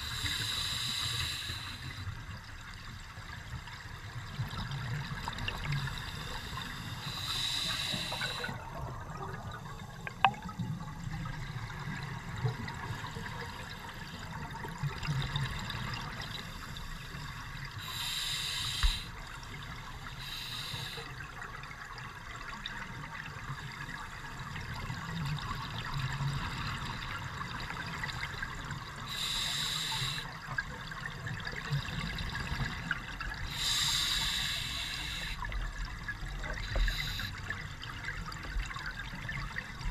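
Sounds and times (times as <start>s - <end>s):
regulator inhalation hiss: 0.0s - 2.1s, 5.9s - 8.6s, 17.8s - 19.2s, 20.1s - 21.2s, 29.1s - 30.4s, 33.5s - 35.5s, 36.6s - 37.4s
exhaled bubbles rumbling: 8.4s - 13.6s.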